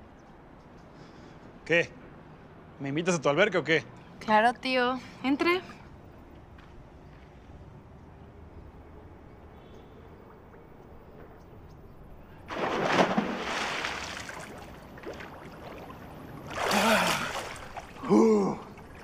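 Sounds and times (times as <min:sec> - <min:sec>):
water sloshing: 0:09.4 - 0:19.0
splash into swimming pool: 0:12.5 - 0:18.1.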